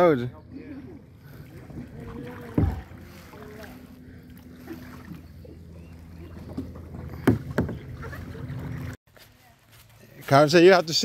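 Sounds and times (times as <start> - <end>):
wind and water rumble: 0.0 - 9.0
hard knocks on canoe: 1.8 - 3.0, 6.6 - 8.0.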